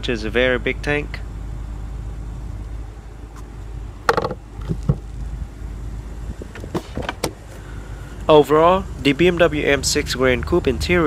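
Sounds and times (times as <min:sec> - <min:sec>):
steady low rumble: 0:00.0 - 0:11.0
soft knocks: 0:04.1 - 0:05.0.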